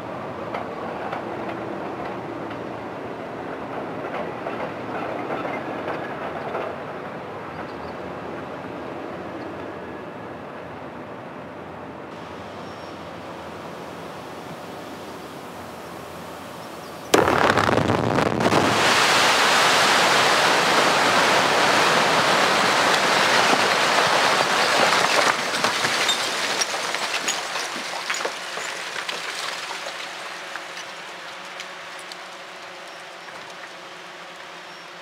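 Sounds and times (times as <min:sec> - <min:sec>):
dynamite explosion: 0:17.1 - 0:20.3
loud rush of noise: 0:17.2 - 0:24.5
clicks and rattles of debris: 0:22.9 - 0:33.8.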